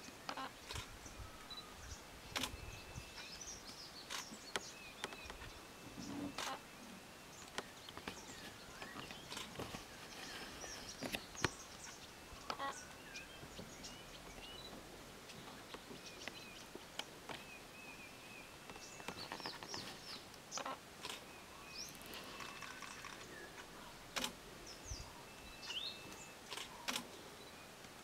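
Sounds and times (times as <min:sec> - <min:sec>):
birds chirping: 0:00.0 - 0:28.0
faint steady hiss: 0:00.0 - 0:28.0
sharp clicks: 0:02.3 - 0:02.6, 0:24.1 - 0:24.4, 0:26.5 - 0:27.1.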